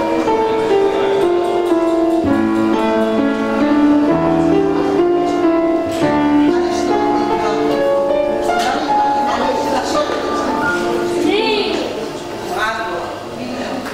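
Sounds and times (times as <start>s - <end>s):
upright piano playing: 0.0s - 13.4s.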